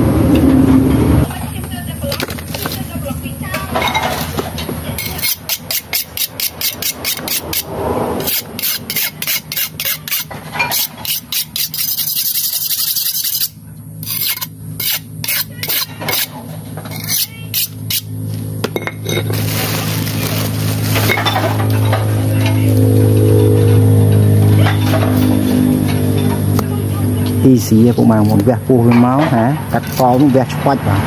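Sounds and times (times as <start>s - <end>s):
knife sharpened on steel: 5.0s - 18.1s.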